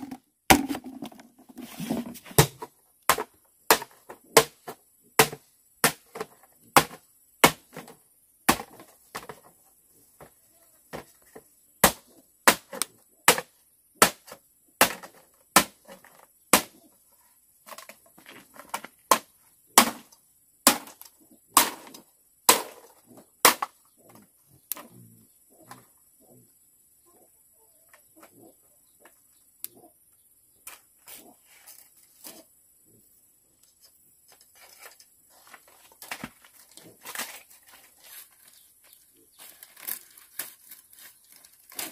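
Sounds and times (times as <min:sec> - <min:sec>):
machete chopping bamboo: 0:00.0 - 0:01.2, 0:02.3 - 0:09.4, 0:11.8 - 0:16.8, 0:19.1 - 0:23.8.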